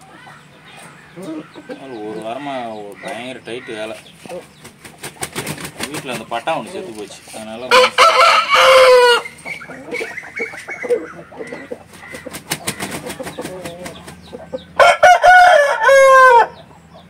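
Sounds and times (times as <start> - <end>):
chickens calling softly: 0.0 - 17.0
rooster wings flapping: 4.6 - 6.3, 12.2 - 14.2
rooster crowing: 7.7 - 9.4, 14.8 - 16.6.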